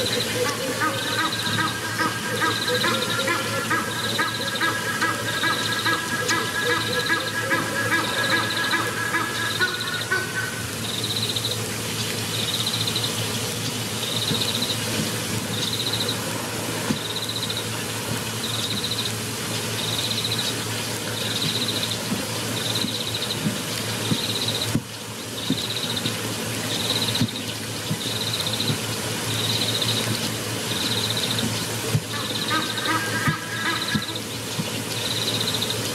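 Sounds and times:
held pitched notes: 0:00.0 - 0:11.5
high trilled animal call: 0:00.0 - 0:11.5, 0:32.1 - 0:34.3
steady outdoor hiss: 0:00.0 - 0:35.9.

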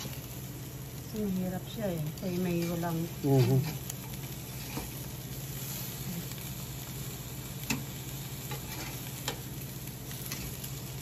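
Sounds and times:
fish sizzling on grill: 0:00.0 - 0:11.0
tongs clicking on grate: 0:07.6 - 0:07.9, 0:08.5 - 0:09.5.

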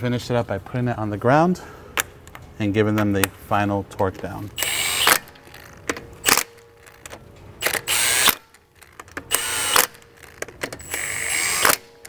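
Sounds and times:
impact wrench whirring and hammering: 0:04.5 - 0:12.0.

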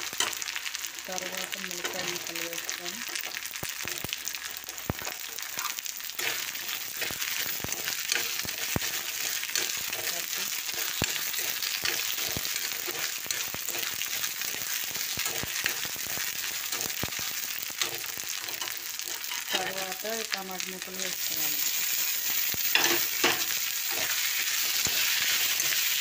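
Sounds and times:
food sizzling in hot oil: 0:00.0 - 0:26.0
steel spoon scraping pan: 0:06.2 - 0:14.2, 0:17.8 - 0:19.8, 0:22.7 - 0:26.0.

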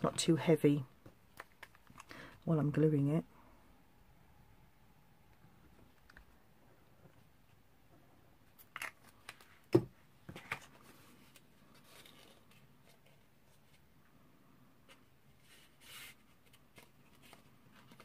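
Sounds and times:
paper rustling: 0:14.9 - 0:18.0.

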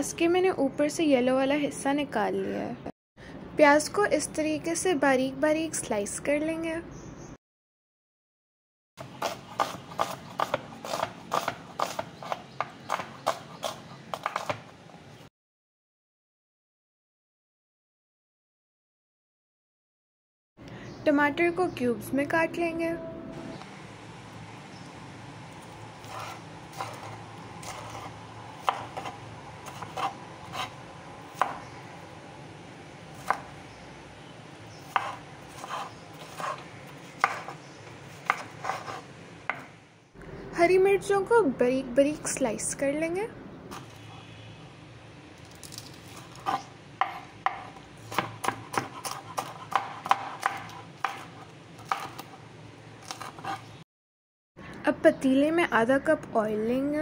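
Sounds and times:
knife chopping onion on wooden board: 0:09.0 - 0:14.8, 0:26.0 - 0:31.8, 0:33.1 - 0:33.6, 0:34.8 - 0:39.8, 0:46.2 - 0:52.4, 0:53.0 - 0:53.8.

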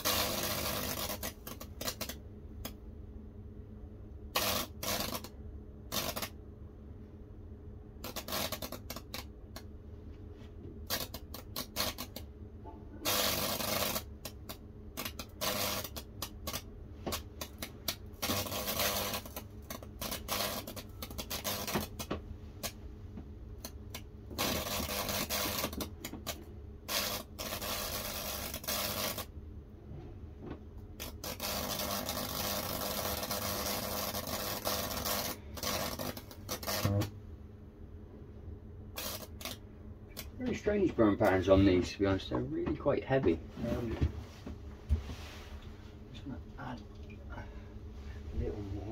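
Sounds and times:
electrical crackling and sizzling: 0:00.0 - 0:02.8, 0:04.4 - 0:06.4, 0:08.0 - 0:09.6, 0:10.8 - 0:12.3, 0:12.9 - 0:22.8, 0:23.6 - 0:29.3, 0:31.0 - 0:37.2, 0:39.0 - 0:42.3
low electrical hum: 0:00.0 - 0:48.9.

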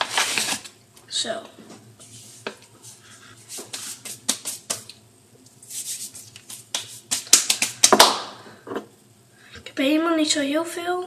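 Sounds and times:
crinkly bag rustling: 0:00.0 - 0:00.7.

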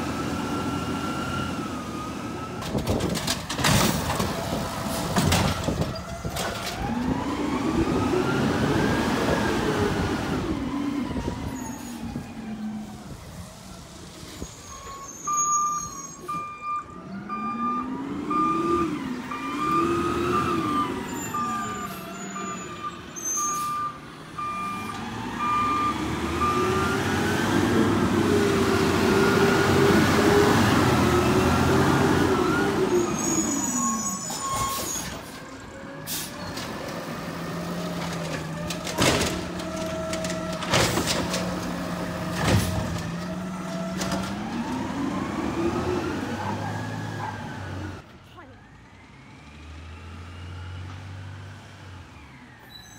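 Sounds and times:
garbage truck engine revving: 0:03.0 - 0:11.4, 0:17.0 - 0:23.1, 0:24.1 - 0:48.0
air brakes squealing and hissing: 0:11.4 - 0:12.2, 0:14.3 - 0:16.6, 0:21.0 - 0:24.0, 0:32.9 - 0:36.6, 0:52.1 - 0:52.9
repeated warning beep: 0:14.9 - 0:26.8.

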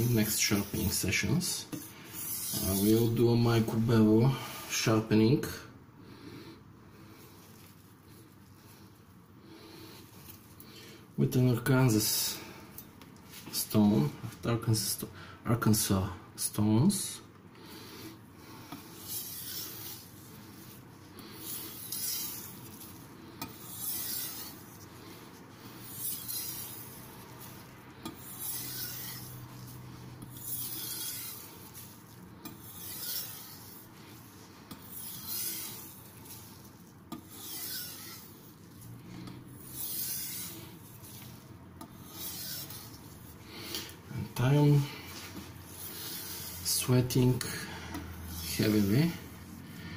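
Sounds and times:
blade rasping on whetstone: 0:01.8 - 0:03.2, 0:18.8 - 0:43.9, 0:45.1 - 0:47.4, 0:48.1 - 0:49.6.

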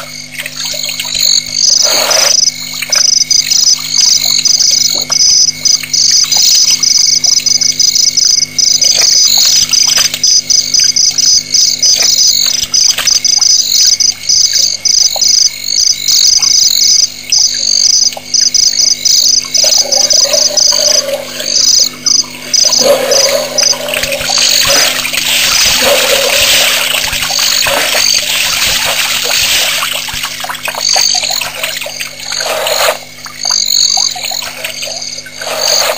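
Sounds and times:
insects and frogs trilling: 0:00.0 - 0:35.9
elephant splashing water: 0:22.3 - 0:33.1, 0:35.4 - 0:35.9.

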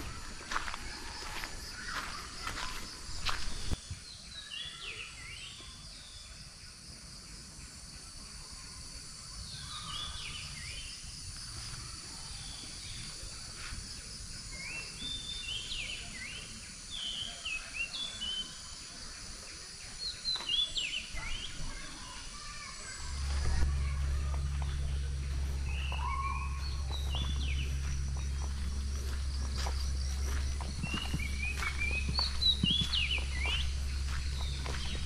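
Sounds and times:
birds whistling calls: 0:22.8 - 0:35.0
high insect buzz: 0:23.0 - 0:35.0.

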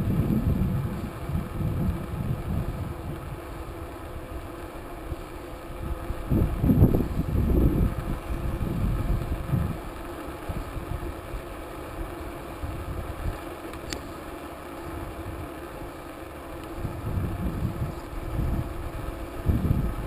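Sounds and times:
wind buffeting microphone: 0:00.0 - 0:03.7, 0:05.8 - 0:11.4, 0:16.8 - 0:20.0
bicycle rolling on asphalt: 0:00.0 - 0:20.0.

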